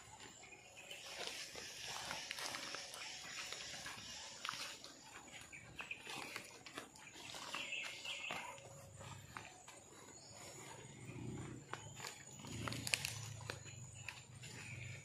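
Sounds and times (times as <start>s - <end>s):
footsteps crunching through dry leaves: 0.0s - 15.0s
leaves rustling: 0.9s - 6.5s
twigs crackling: 1.0s - 8.8s, 12.0s - 14.8s.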